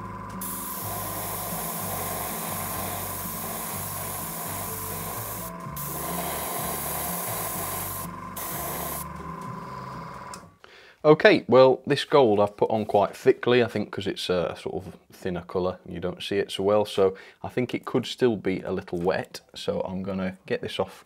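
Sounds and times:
airbrush spraying hiss: 0.4 - 9.1.

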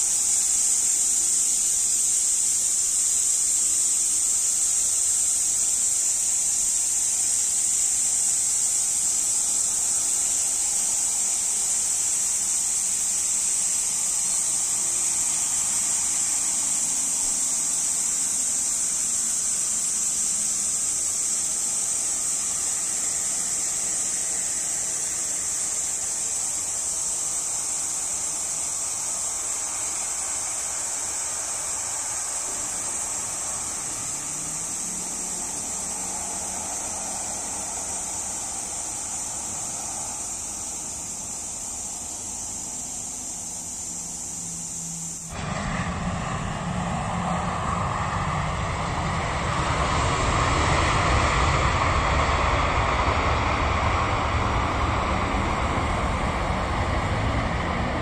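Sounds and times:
jet engines hissing: 0.0 - 58.0
loud low rumble: 45.2 - 58.0.

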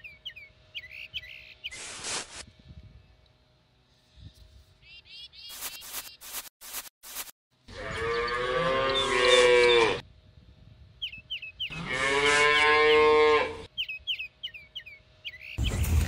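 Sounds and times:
cattle mooing: 7.7 - 10.0, 11.7 - 13.7.

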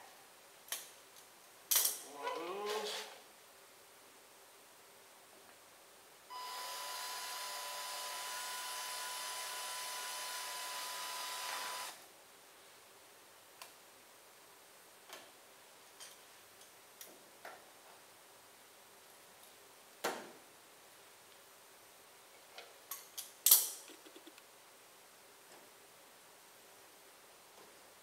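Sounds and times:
electric drill whining: 6.3 - 12.0.

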